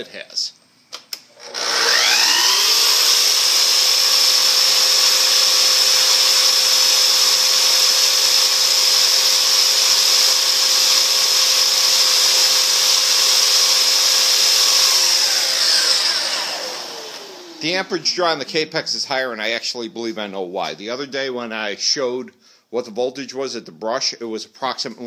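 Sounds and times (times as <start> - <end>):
miter saw motor whining: 1.4 - 17.8
dust extractor running: 1.4 - 18.4.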